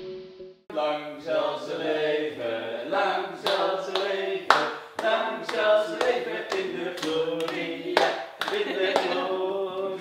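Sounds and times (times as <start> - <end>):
people singing together: 0.7 - 10.0
hand claps in time: 3.4 - 9.2.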